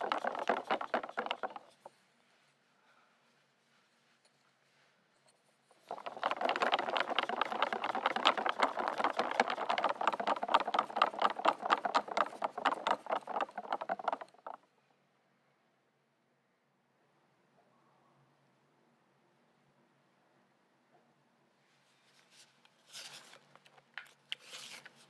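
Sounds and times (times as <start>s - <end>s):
whisk beating in glass bowl: 0.0s - 1.9s, 5.8s - 14.6s.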